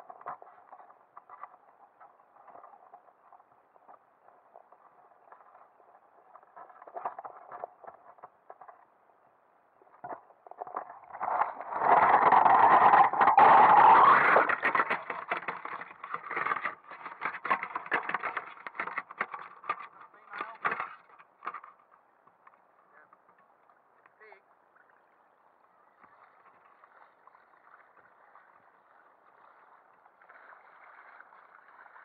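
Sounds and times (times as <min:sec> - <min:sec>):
water splashing: 0:09.9 - 0:32.0.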